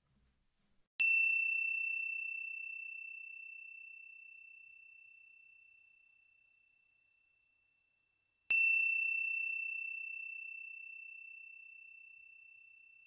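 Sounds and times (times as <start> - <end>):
small bell ringing: 1.0 - 5.7, 8.5 - 13.0.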